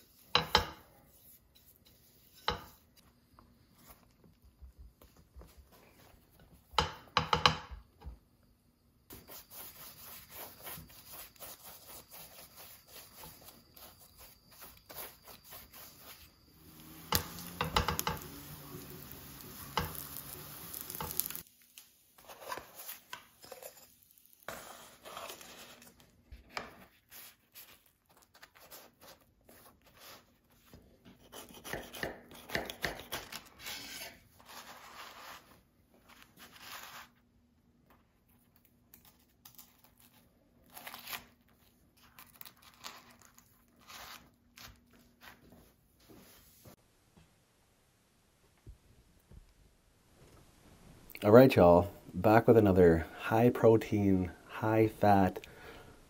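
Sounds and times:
wraps knocking and scraping in pan: 0:00.0 - 0:03.0, 0:10.1 - 0:21.5
wraps sizzling in a skillet: 0:00.0 - 0:04.1, 0:09.1 - 0:37.2
knife cutting on wooden board: 0:31.2 - 0:34.2.

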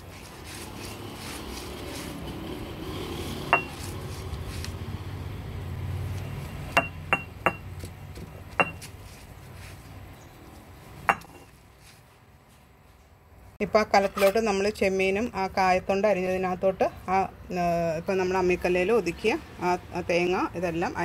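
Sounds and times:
stone roller grinding rumble: 0:00.9 - 0:04.6.

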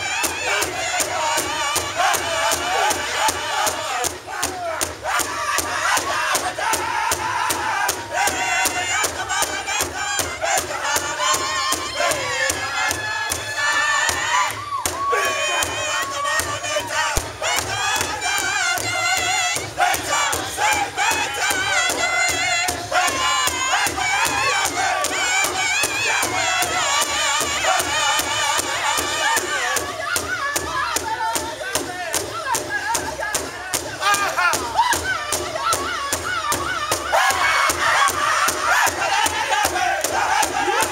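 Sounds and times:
large hide drum beating: 0:00.0 - 0:40.9
men singing in high voices: 0:00.0 - 0:40.9.

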